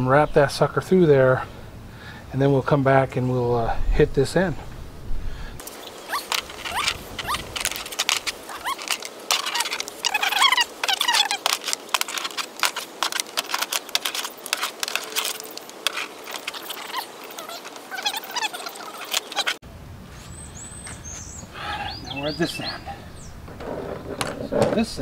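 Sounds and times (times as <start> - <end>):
birds chirping: 5.6 - 25.0
clicking and rattling of cable: 6.1 - 19.6.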